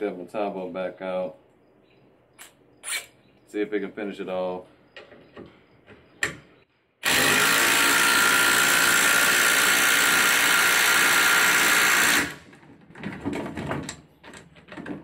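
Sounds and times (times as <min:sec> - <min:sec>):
impact driver hammering: 0:07.0 - 0:12.4.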